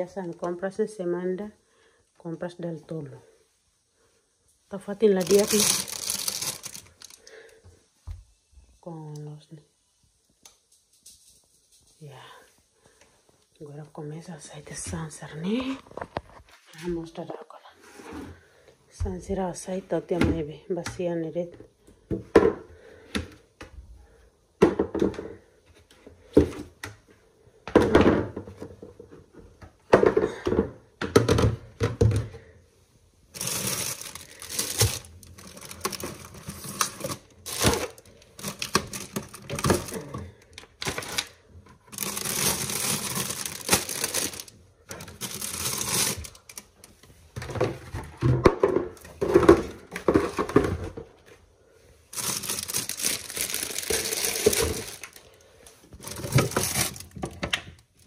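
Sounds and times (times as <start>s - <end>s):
plastic crinkling and rustling: 4.8s - 7.6s, 33.3s - 48.3s, 52.1s - 58.0s.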